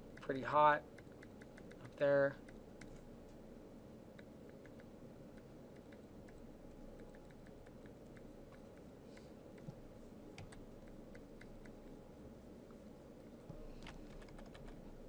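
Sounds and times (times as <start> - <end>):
low room hum: 0.0 - 15.0
light computer mouse clicks: 1.0 - 3.0, 4.2 - 6.4, 7.0 - 9.8, 10.4 - 11.8.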